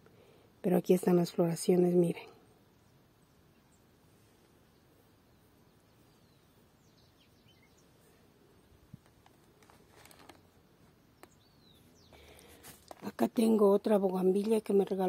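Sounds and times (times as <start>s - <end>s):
distant bird chirps: 4.7s - 9.2s, 10.0s - 12.9s.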